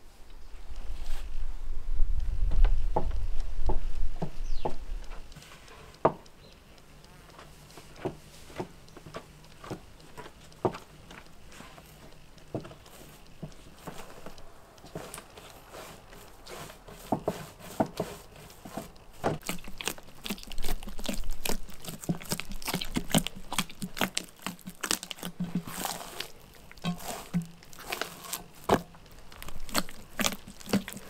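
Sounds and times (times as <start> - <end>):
hands kneading wet dough: 7.4 - 31.0.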